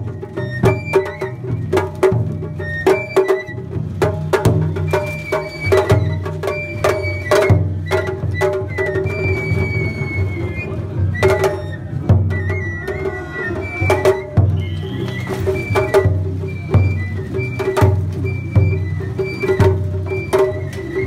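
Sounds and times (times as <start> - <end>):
high bamboo flute: 0.0 - 21.0
large drum beating: 0.0 - 21.0.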